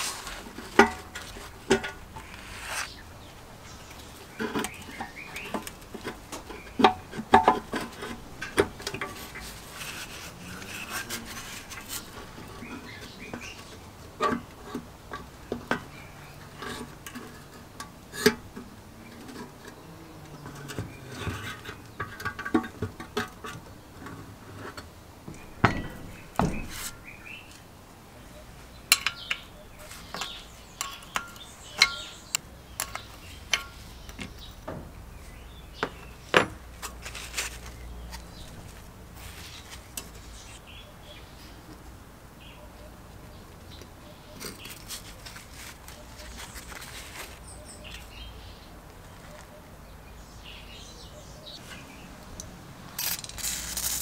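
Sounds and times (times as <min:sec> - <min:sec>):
metal clinks and scrapes: 0:28.9 - 0:34.5, 0:53.0 - 0:54.0
wrench on bolts: 0:53.0 - 0:54.0.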